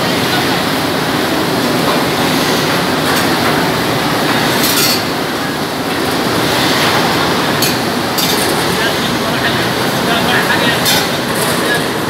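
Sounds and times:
conveyor line running: 0.0s - 12.0s.

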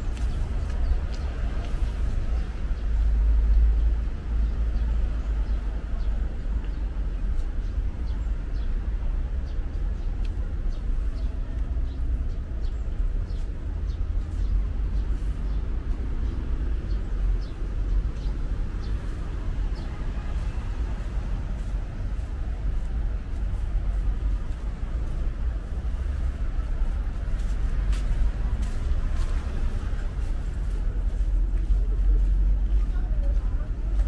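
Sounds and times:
faint light ticks: 10.2s - 10.4s.

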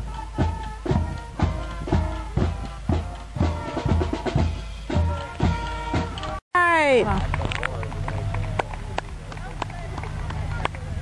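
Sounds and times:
bass drum beating: 0.0s - 6.4s
brass holding sustained notes: 0.0s - 6.4s.

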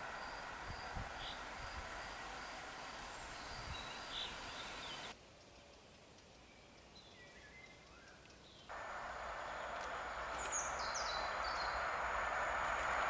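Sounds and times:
train rolling noise: 0.0s - 5.1s, 8.7s - 13.0s
birds chirping: 0.0s - 5.2s, 6.4s - 13.0s.

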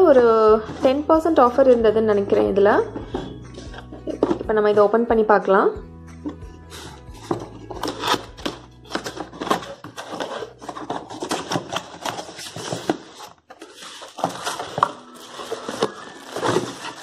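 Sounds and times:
cardboard box rustling and scraping: 6.6s - 17.0s.

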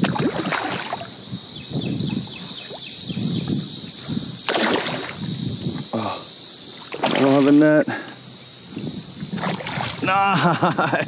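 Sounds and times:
fish thrashing and splashing: 0.0s - 1.1s, 4.4s - 5.2s, 6.8s - 7.6s, 9.3s - 10.0s.

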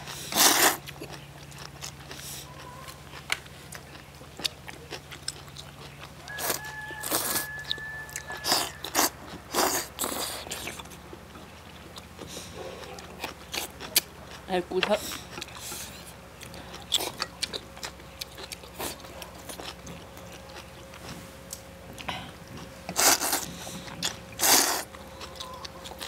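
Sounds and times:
person chewing: 0.0s - 26.0s
person slurping noodles: 0.2s - 0.8s, 23.0s - 23.5s, 24.4s - 24.9s.

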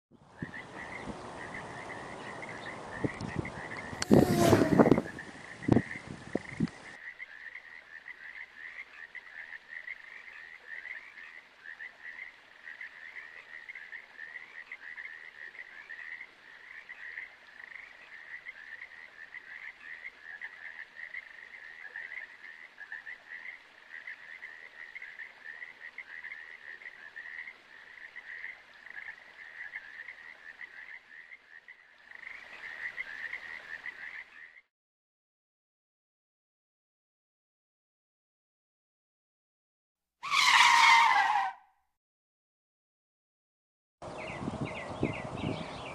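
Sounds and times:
chorus of high animal calls: 4.0s - 5.2s, 40.2s - 41.6s.

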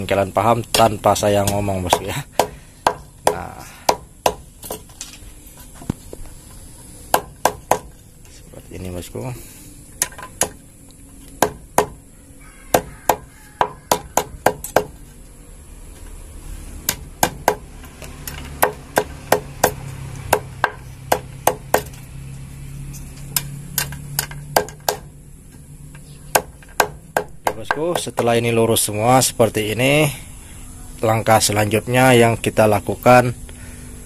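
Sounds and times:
hammer striking wire on wood: 0.7s - 5.1s, 7.1s - 8.0s, 10.0s - 10.6s, 11.2s - 12.0s, 12.7s - 15.0s, 16.8s - 22.1s, 23.0s - 25.1s, 25.9s - 28.4s.

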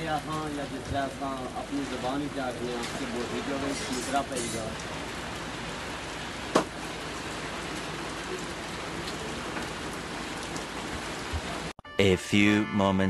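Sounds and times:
rain falling: 0.0s - 11.8s.

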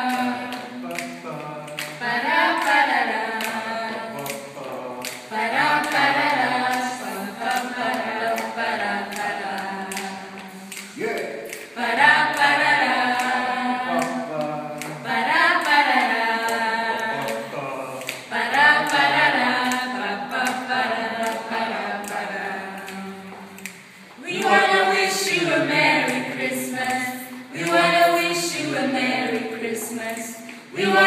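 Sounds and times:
a cappella choir singing: 0.0s - 31.0s
singers breathing: 23.7s - 24.2s.

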